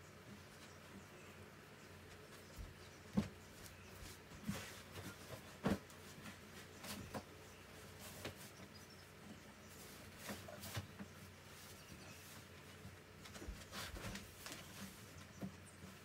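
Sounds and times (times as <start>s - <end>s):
bedding rustling: 9.7s - 15.2s.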